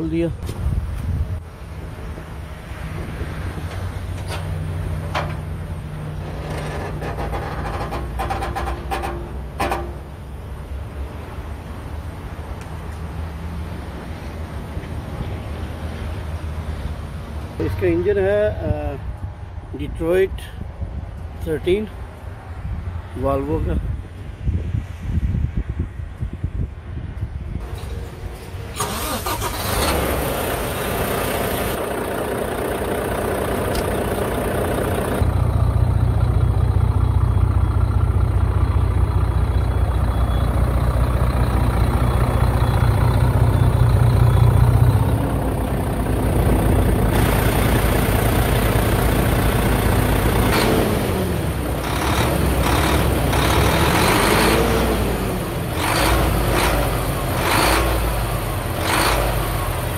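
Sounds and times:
diesel truck engine running: 0:00.0 - 0:11.8, 0:27.6 - 0:59.9.

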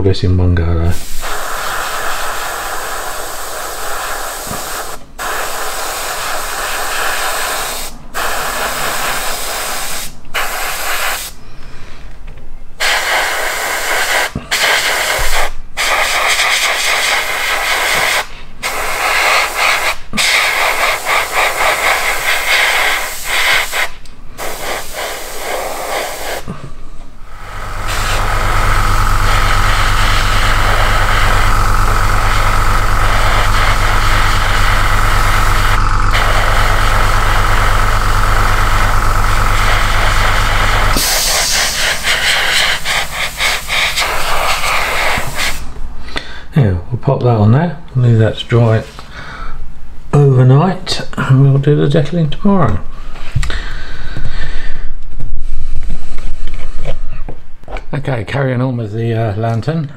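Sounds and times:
steady low hum: 0:00.0 - 0:51.7
airbrush hissing: 0:00.9 - 0:11.4, 0:12.8 - 0:26.6, 0:27.3 - 0:45.7.

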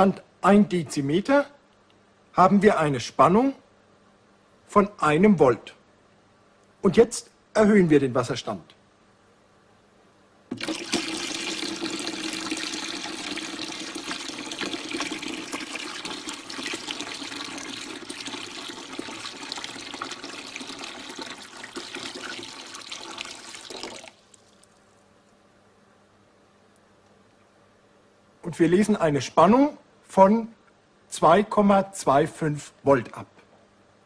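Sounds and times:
water running into tank: 0:10.5 - 0:24.8.

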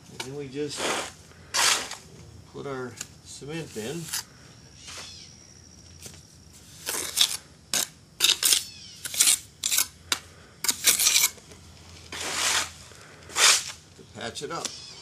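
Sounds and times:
gritty scrapes of cement by hand: 0:00.4 - 0:02.1, 0:03.6 - 0:04.3, 0:06.6 - 0:10.0, 0:10.6 - 0:13.8.

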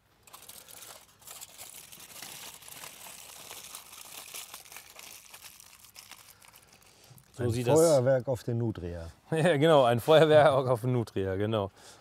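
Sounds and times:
aluminium foil crinkling: 0:00.0 - 0:08.0
dense crackle: 0:00.0 - 0:08.4.

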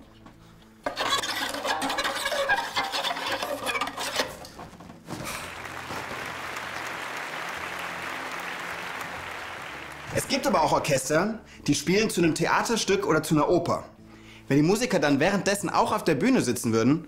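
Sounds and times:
violin screeching: 0:00.9 - 0:04.3
applause: 0:05.3 - 0:10.9.

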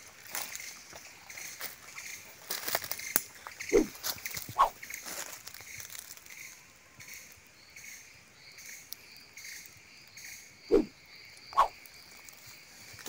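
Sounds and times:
insects chirping: 0:00.0 - 0:13.0.

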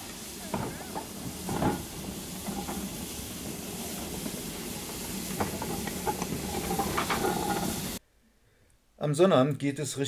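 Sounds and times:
steam locomotive hissing: 0:00.0 - 0:08.0.

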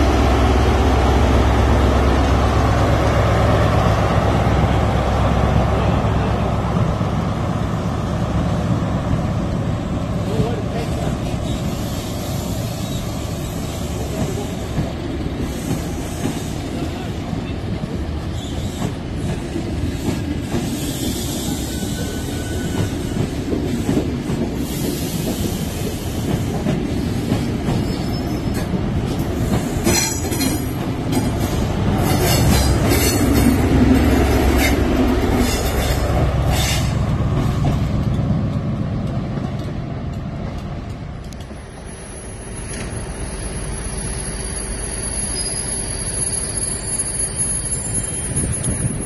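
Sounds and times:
train coaches rumbling: 0:00.0 - 0:49.0
wheel clicks and squeals: 0:41.4 - 0:49.0.

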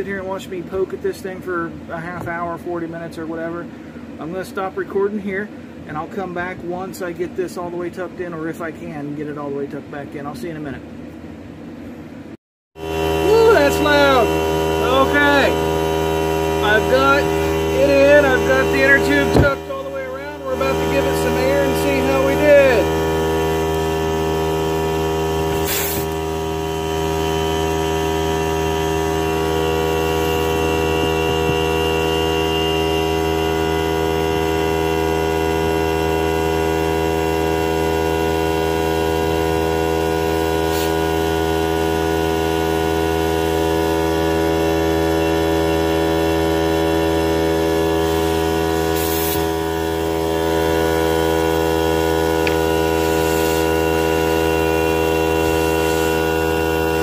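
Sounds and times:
air compressor humming: 0:03.6 - 0:04.7, 0:10.9 - 0:57.0
short air hisses: 0:25.4 - 0:26.2, 0:40.6 - 0:41.1, 0:48.1 - 0:49.6, 0:52.4 - 0:56.9.

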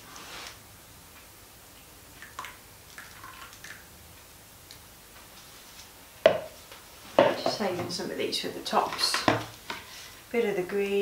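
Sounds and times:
plastic jugs clicking and tapping: 0:06.2 - 0:06.6.

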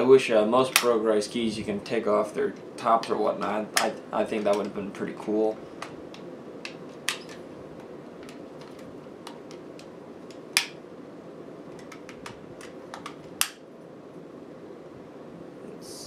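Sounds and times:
plastic snaps: 0:05.8 - 0:10.8, 0:11.7 - 0:13.6.

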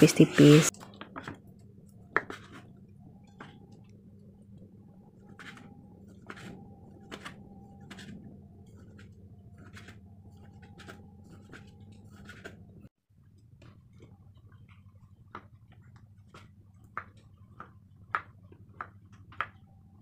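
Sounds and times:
low hum: 0:00.0 - 0:15.2.

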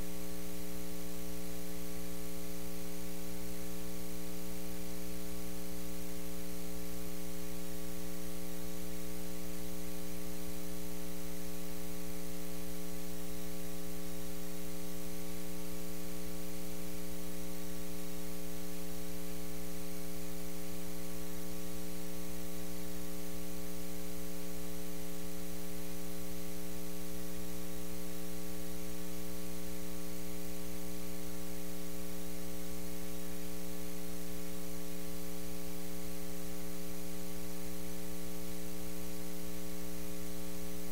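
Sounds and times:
electrical mains hum: 0:00.0 - 0:40.9.

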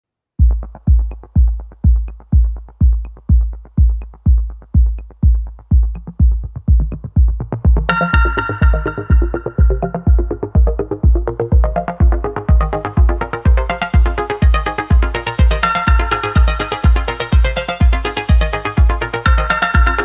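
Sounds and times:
electronic music: 0:00.4 - 0:20.0
heavy kick-drum beat: 0:00.4 - 0:20.0
bright synth chord: 0:07.9 - 0:10.7.

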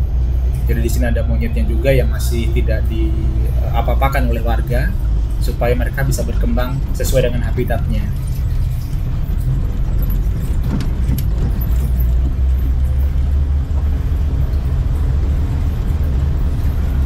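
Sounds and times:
car engine and road noise: 0:00.0 - 0:17.0
light clicks or rattles: 0:08.0 - 0:17.0.

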